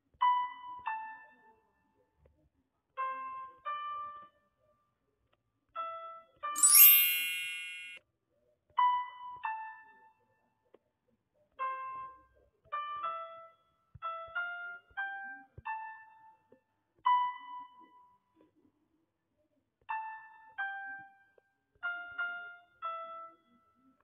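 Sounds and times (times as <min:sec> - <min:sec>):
bright chime: 0:06.6 - 0:08.0.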